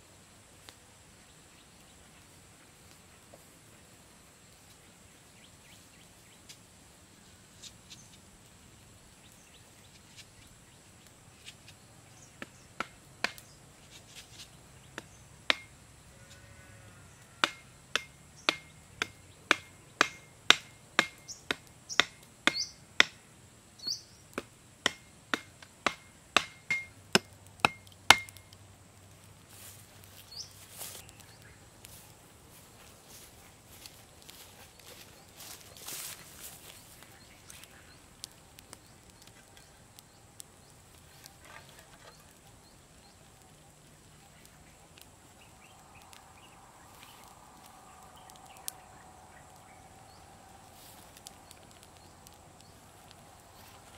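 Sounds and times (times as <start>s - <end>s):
wood being struck: 15.0s - 15.7s, 17.4s - 23.2s, 24.4s - 28.5s
bird chirps: 21.2s - 22.8s, 23.8s - 24.2s, 30.2s - 31.7s.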